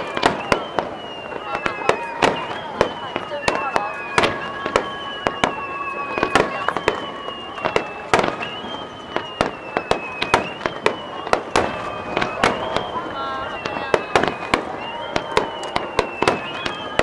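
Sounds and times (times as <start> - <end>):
firework shells bursting: 0.0 - 17.0
high whistling tone: 0.0 - 17.0.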